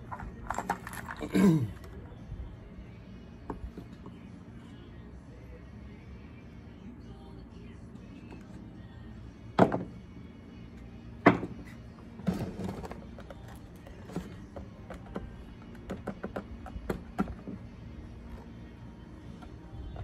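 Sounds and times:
plastic parts rattling: 0.0s - 1.4s
plastic parts knocking on workbench: 9.6s - 9.9s, 11.2s - 11.6s.

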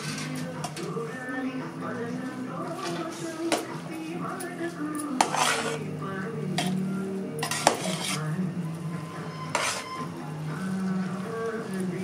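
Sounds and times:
metal utensil scraping cooking pot: 0.0s - 1.0s, 5.0s - 5.9s, 6.6s - 8.4s, 9.4s - 10.1s.

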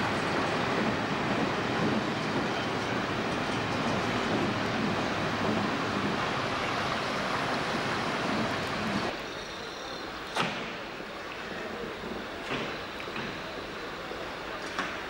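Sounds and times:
station background noise: 0.0s - 15.0s
train wheels rumbling on rails: 0.0s - 15.0s.

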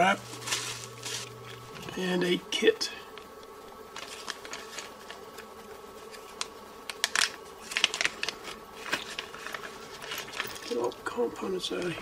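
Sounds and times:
plastic bag crinkling: 0.0s - 2.0s, 3.9s - 11.0s.

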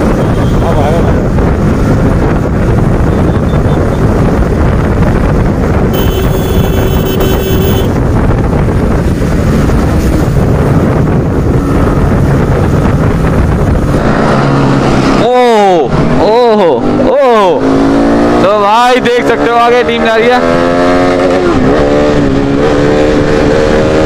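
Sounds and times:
motorcycle engine running: 0.0s - 13.9s
wind buffeting microphone: 0.0s - 16.2s.

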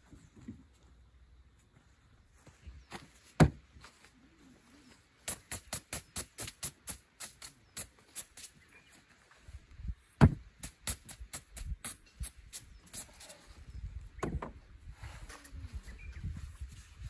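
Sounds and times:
hand broom brushing tarp: 5.2s - 8.6s
sharp thump: 10.2s - 10.4s.

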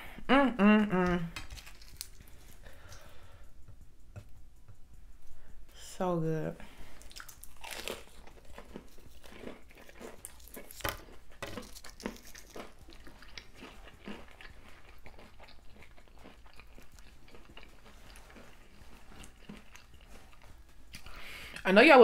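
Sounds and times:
crunchy chewing: 1.3s - 3.6s, 6.8s - 21.7s.

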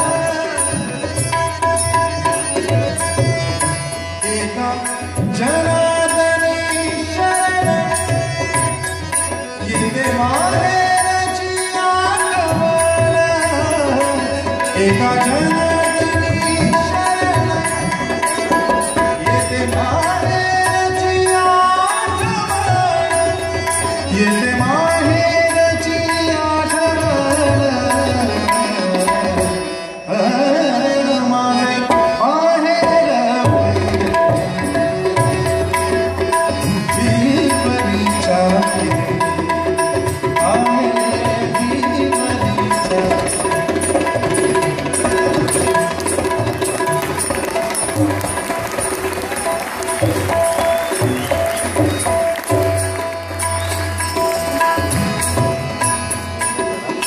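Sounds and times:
man singing: 0.0s - 1.4s, 4.2s - 35.4s, 36.3s - 47.0s
tabla rhythm: 0.0s - 57.0s.

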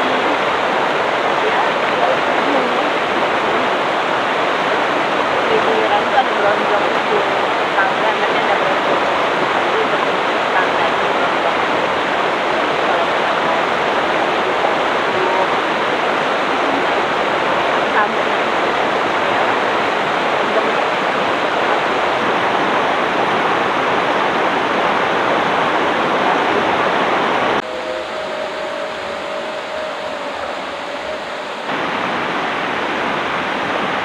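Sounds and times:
river water rushing: 0.0s - 34.0s.

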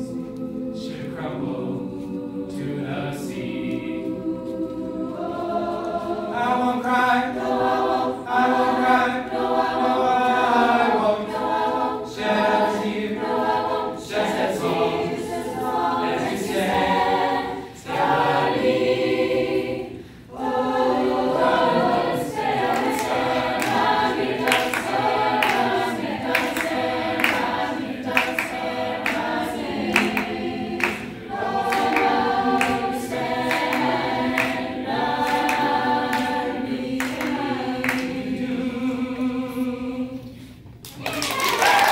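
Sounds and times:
youth choir singing in parts: 0.0s - 40.5s
rhythmic hand claps: 20.4s - 38.4s, 40.8s - 41.9s.

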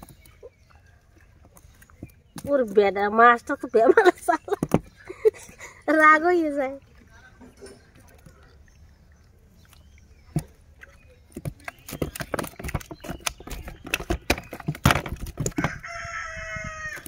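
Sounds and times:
rustling and clicking of handling: 9.6s - 16.0s.

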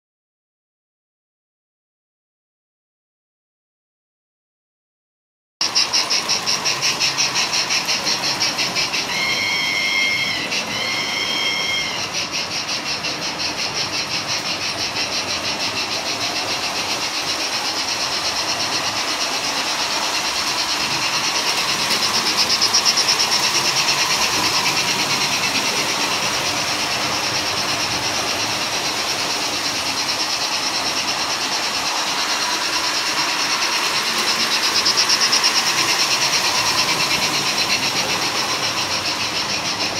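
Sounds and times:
steam engine chuffing: 5.6s - 39.9s
steam whistle blast: 9.0s - 12.2s.

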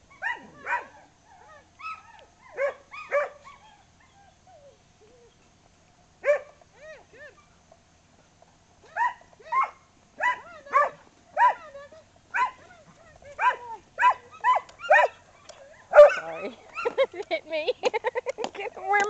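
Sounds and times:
dog barking: 0.2s - 1.0s, 2.6s - 3.5s, 6.2s - 6.6s, 8.9s - 11.7s, 12.3s - 12.7s, 13.4s - 15.2s, 15.9s - 17.0s.

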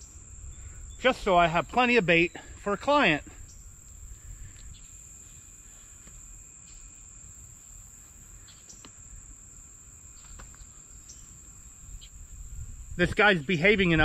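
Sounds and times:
insects trilling: 0.0s - 14.0s
wind rumble on microphone: 11.8s - 14.0s.

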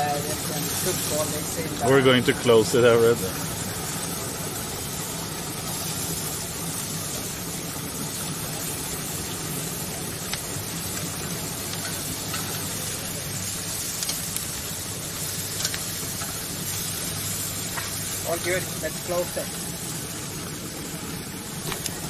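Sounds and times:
meat sizzling on grill: 0.0s - 22.0s
metal tongs clicking on grate: 11.7s - 12.6s, 14.0s - 14.5s, 15.5s - 16.4s.

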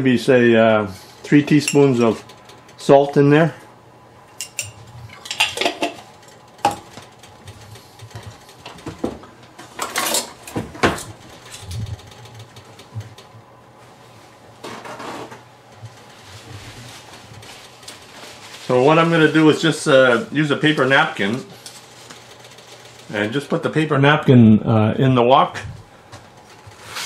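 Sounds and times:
metal utensils and pans clinking: 4.3s - 6.0s.

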